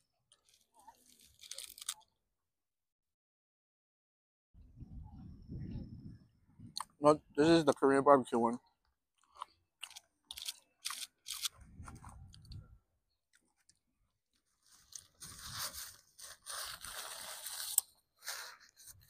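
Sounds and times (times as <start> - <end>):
person crunching and chewing food: 0.3 - 2.1, 9.2 - 12.4.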